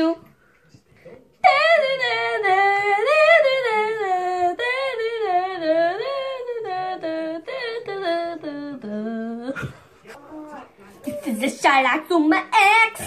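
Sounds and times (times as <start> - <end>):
boy singing a cappella: 1.4 - 9.8.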